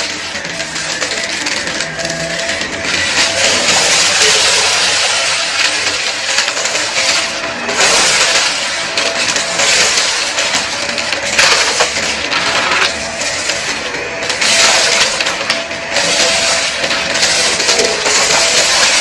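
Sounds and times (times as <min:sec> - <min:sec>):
vacuum cleaner motor whine: 0:00.0 - 0:19.0.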